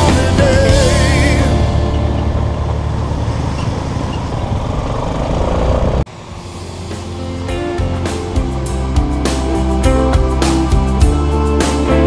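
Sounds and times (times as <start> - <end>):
background music: 0.0 - 3.6, 6.1 - 12.0
motorcycle engine running: 0.0 - 11.2.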